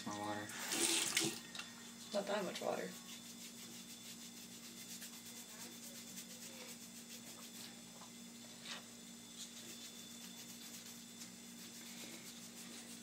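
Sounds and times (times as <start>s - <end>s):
low room hum: 0.0s - 13.0s
soft rubbing on skin: 2.1s - 8.0s, 8.6s - 13.0s.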